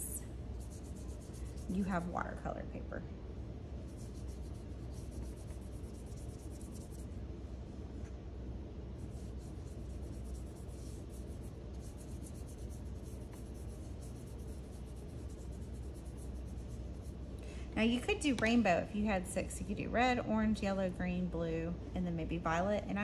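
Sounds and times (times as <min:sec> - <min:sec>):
steady low hum: 0:00.0 - 0:23.0
paintbrush rubbing on paper: 0:00.5 - 0:02.2, 0:03.8 - 0:07.2, 0:09.0 - 0:17.3.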